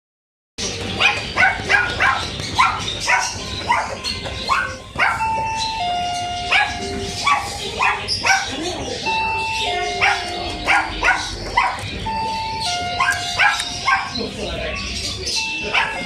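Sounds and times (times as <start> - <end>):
electronic chime tones: 12.0 - 16.0
small dog yapping: 13.0 - 14.2.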